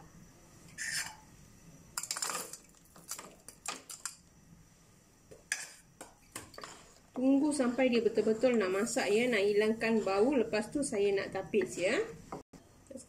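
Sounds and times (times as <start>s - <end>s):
wooden spatula scraping a wok: 0.7s - 1.2s, 6.6s - 10.9s.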